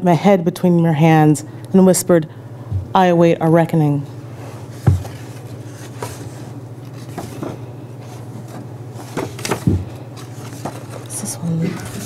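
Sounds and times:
microphone handling knocks: 0:02.7 - 0:03.0, 0:04.8 - 0:05.1.

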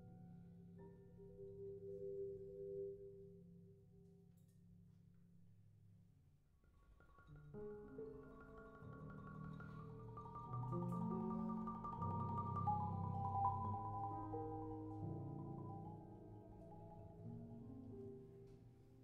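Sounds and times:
grand piano playing: 0:07.2 - 0:19.0
marimba chords: 0:08.3 - 0:16.1.

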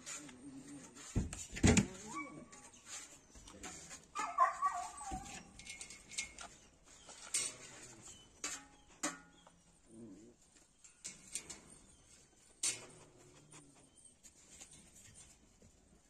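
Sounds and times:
dog whining: 0:02.0 - 0:02.8, 0:04.2 - 0:05.6.

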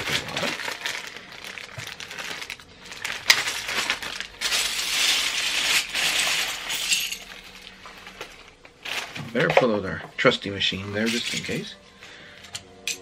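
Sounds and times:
plastic bricks pouring out: 0:00.0 - 0:06.8
plastic bag crinkling: 0:00.0 - 0:09.8.

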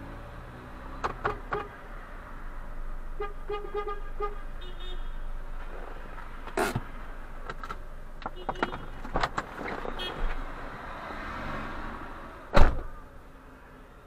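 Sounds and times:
street traffic: 0:00.0 - 0:14.0
loud thump: 0:12.5 - 0:12.9.

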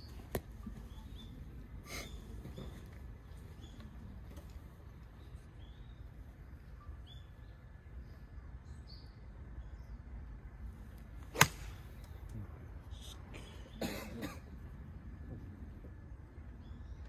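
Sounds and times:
golf club striking ball: 0:11.3 - 0:12.0.

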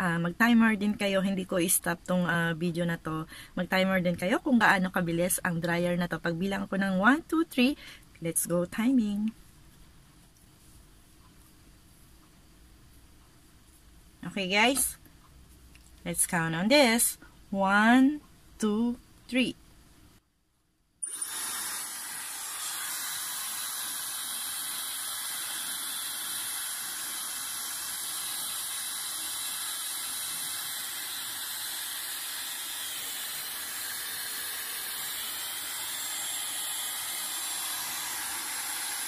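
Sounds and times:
hair dryer blowing: 0:21.0 - 0:39.0.

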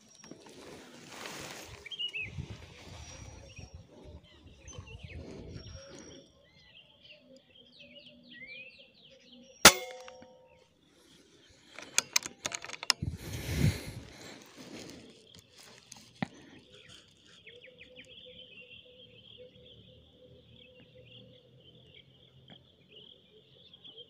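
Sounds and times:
small birds chirping: 0:00.0 - 0:24.0
air rifle shot: 0:09.7 - 0:10.3
rifle handling clicks and knocks: 0:09.7 - 0:10.3, 0:11.7 - 0:13.3.

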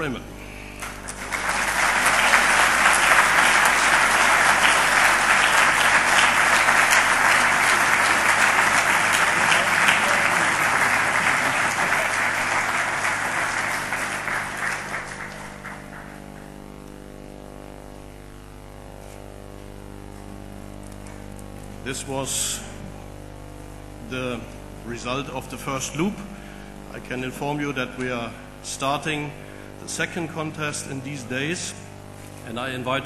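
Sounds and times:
audience applauding: 0:00.8 - 0:16.8.

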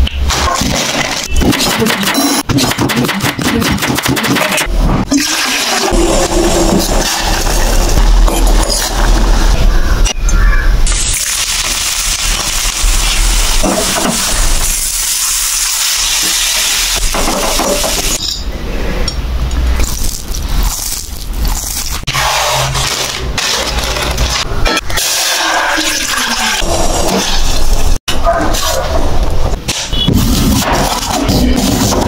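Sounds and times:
plastic packets crinkling: 0:19.8 - 0:22.1.

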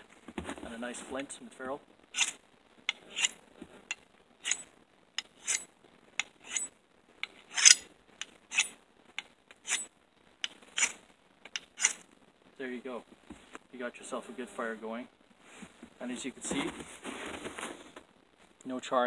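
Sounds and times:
fire-starting rod scraping steel: 0:02.2 - 0:08.8, 0:09.5 - 0:12.0.

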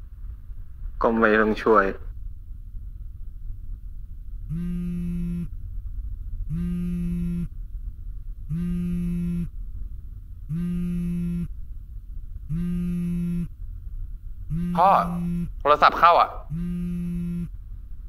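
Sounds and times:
phone ringing buzzy tone: 0:04.5 - 0:05.5, 0:06.5 - 0:07.5, 0:08.5 - 0:09.5, 0:10.5 - 0:11.5, 0:12.5 - 0:13.5, 0:14.5 - 0:15.6, 0:16.5 - 0:17.5.

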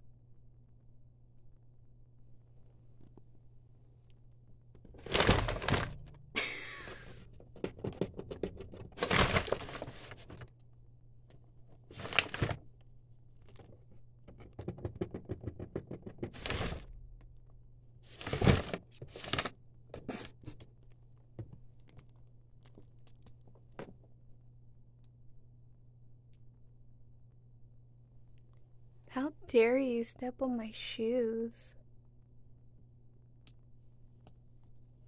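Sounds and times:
rabbit rustling tissue paper: 0:05.0 - 0:05.9, 0:09.0 - 0:10.5, 0:11.8 - 0:12.6, 0:16.4 - 0:16.9, 0:18.0 - 0:19.5.

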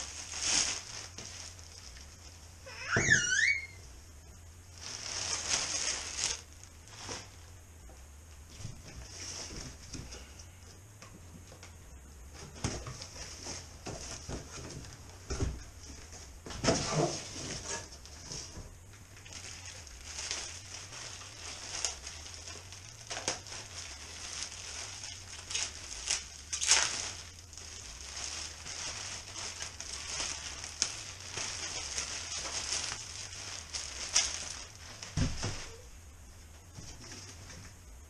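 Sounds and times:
plastic and cardboard rustling: 0:00.0 - 0:07.6, 0:08.4 - 0:37.9.

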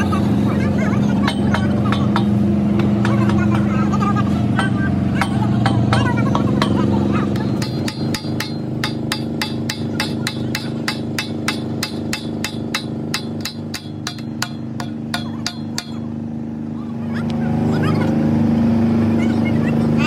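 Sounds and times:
engine humming: 0:00.0 - 0:20.0
hammer blows on metal: 0:04.6 - 0:16.1.

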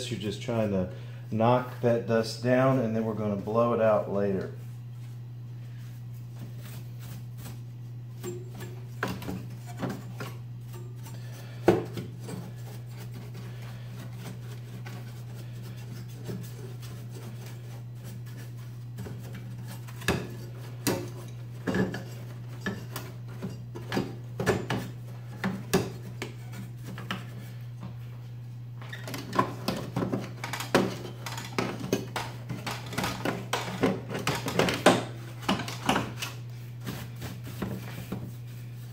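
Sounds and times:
steady low hum: 0:00.0 - 0:38.9
paintbrush rubbing on circuit boards: 0:37.0 - 0:38.9.

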